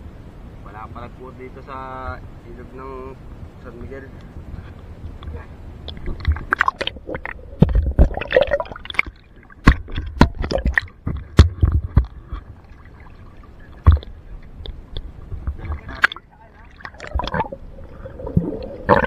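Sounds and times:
river water splashing: 0:05.6 - 0:19.0
knocks and thumps: 0:09.6 - 0:12.5.

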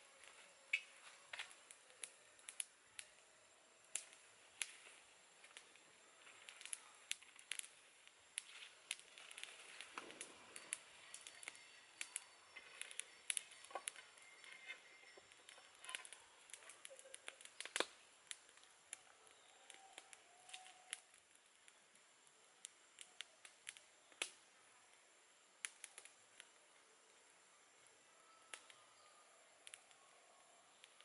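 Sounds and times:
leaves and twigs rustling: 0:00.0 - 0:02.7, 0:03.9 - 0:21.4
twig fire crackling: 0:00.0 - 0:31.0.

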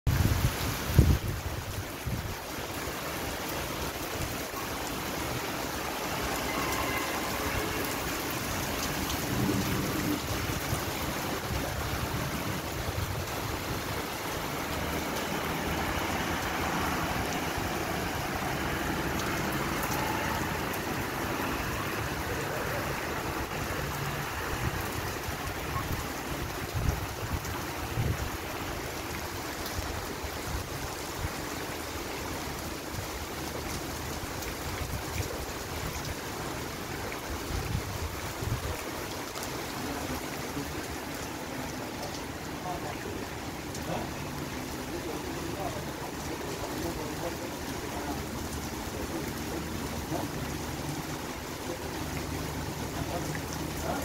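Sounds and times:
rain falling on flooded road: 0:00.1 - 0:54.0
runoff water flowing: 0:00.1 - 0:54.0
car tyres spraying through water: 0:07.7 - 0:25.6.

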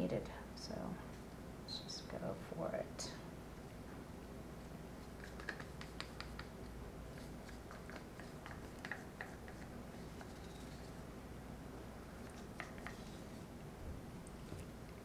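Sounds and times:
stick clicking and tapping: 0:05.1 - 0:10.8, 0:12.2 - 0:13.3.

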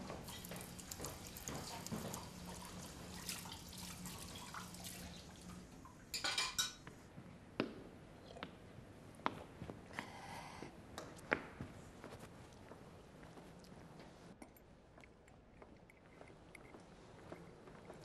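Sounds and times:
tap water splashing: 0:00.1 - 0:05.6
crockery clinking: 0:06.1 - 0:06.9.

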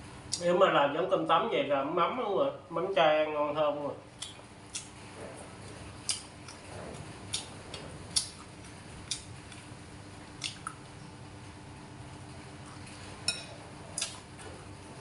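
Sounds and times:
spoon clinking ceramic bowl: 0:13.3 - 0:13.6.

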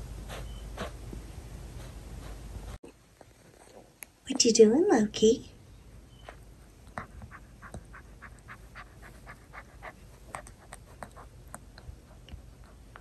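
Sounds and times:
puppy gnawing plastic toy: 0:07.0 - 0:13.0.

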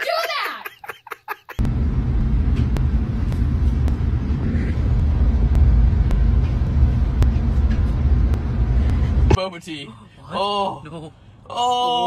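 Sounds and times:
low rumble: 0:01.6 - 0:09.4.

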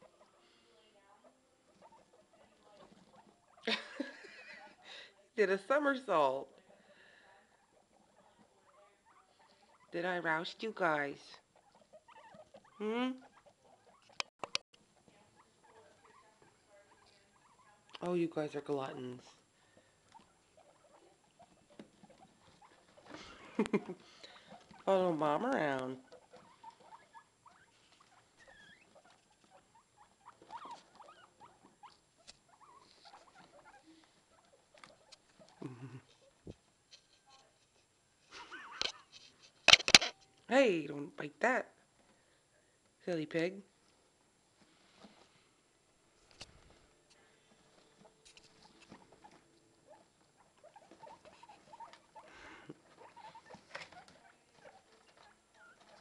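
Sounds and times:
guinea pigs squeaking: 0:00.0 - 0:41.8, 0:46.2 - 0:56.0
soft ticks and rustles: 0:13.4 - 0:40.5, 0:43.7 - 0:56.0.

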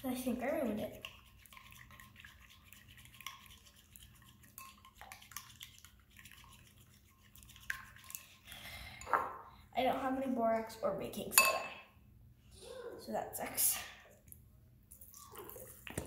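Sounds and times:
spoon stirring slime: 0:00.0 - 0:09.1
spoon tapping bowl: 0:11.4 - 0:11.7.

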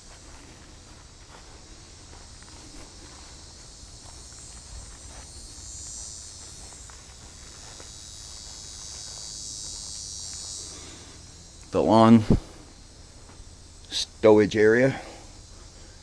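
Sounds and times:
faint footsteps on grass: 0:00.0 - 0:16.0
high-pitched insect chorus: 0:00.0 - 0:16.0.

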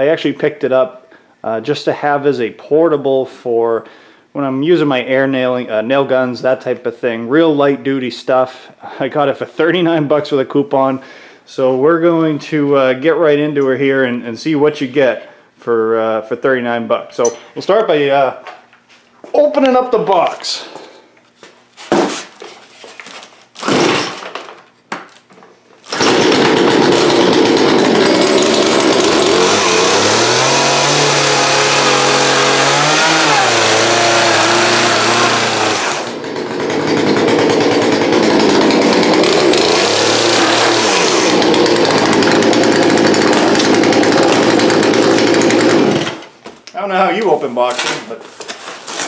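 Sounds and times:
chainsaw cutting cardboard: 0:23.5 - 0:24.3, 0:25.8 - 0:46.3
chainsaw revving: 0:25.9 - 0:46.3.

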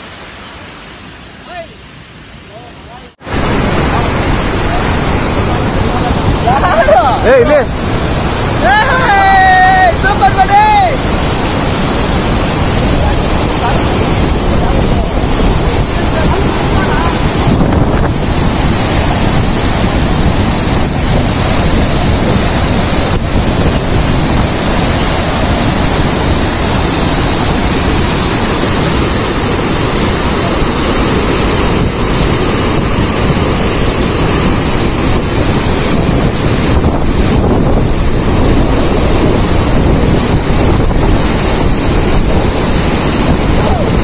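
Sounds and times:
waterfall roaring: 0:00.0 - 0:44.0.

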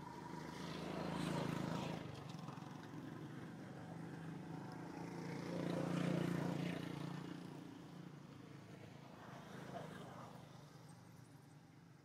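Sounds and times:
motor engine passing by: 0:00.0 - 0:03.3, 0:04.0 - 0:07.6.

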